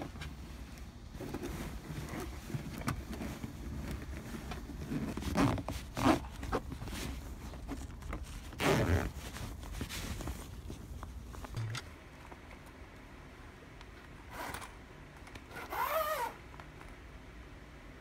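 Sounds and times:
fabric rustling and swishing: 0.0s - 11.6s.

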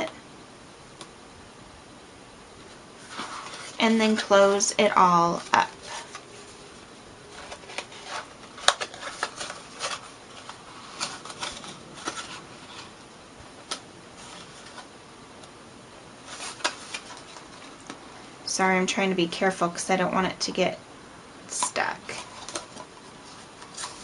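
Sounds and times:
paper rustling and crinkling: 2.6s - 13.0s, 13.6s - 14.9s, 16.2s - 18.0s, 21.6s - 24.0s.

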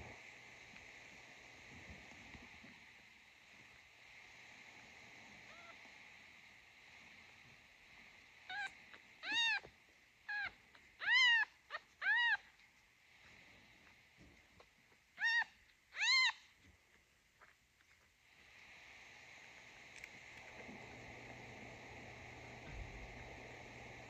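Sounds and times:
kitten mewing: 5.5s - 5.8s, 8.5s - 9.7s, 10.3s - 12.6s, 15.2s - 16.5s.

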